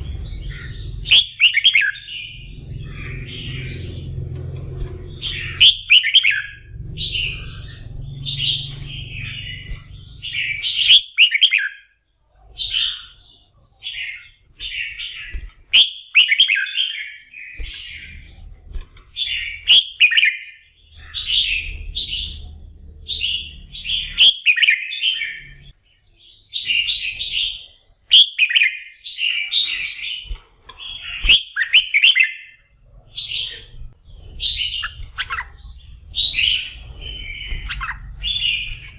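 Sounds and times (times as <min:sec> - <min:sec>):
bulbul singing warbled phrases: 0:00.0 - 0:30.3, 0:30.9 - 0:38.9.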